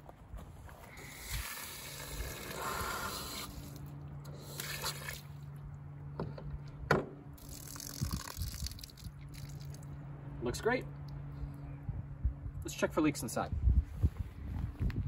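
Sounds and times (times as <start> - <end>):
water rushing from hose: 0.9 - 5.4, 7.4 - 9.8.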